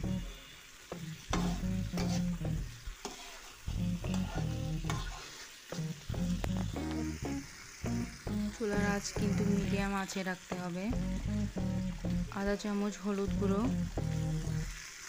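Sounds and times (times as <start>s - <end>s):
light frying sizzle: 0.0s - 15.0s
metal spoon scraping a pan: 1.2s - 5.6s.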